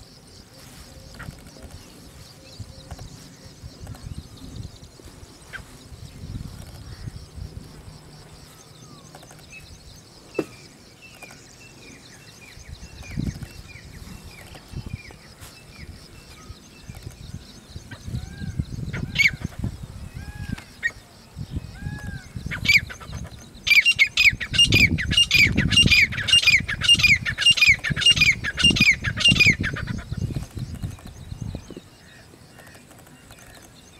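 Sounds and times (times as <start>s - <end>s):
francolin calling: 8.2s - 33.9s.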